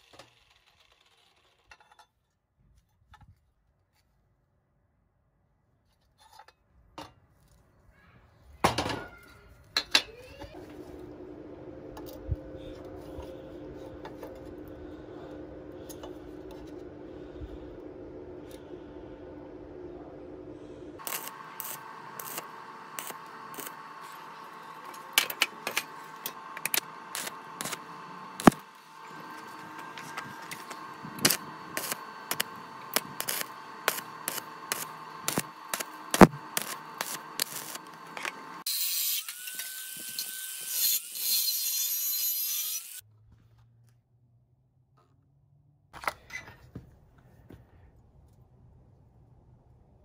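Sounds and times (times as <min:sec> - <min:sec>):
welding arc crackling and buzzing: 0:10.6 - 0:41.4.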